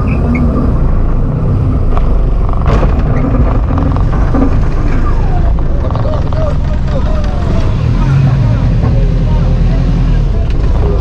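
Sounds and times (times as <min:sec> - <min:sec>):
engine low rumble: 0:00.0 - 0:11.0
sharp cracks: 0:01.9 - 0:07.8.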